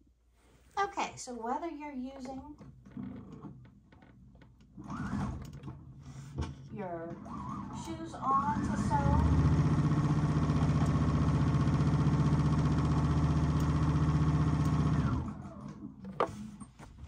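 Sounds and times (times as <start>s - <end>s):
sewing machine stitching: 4.8s - 5.8s, 6.8s - 16.6s.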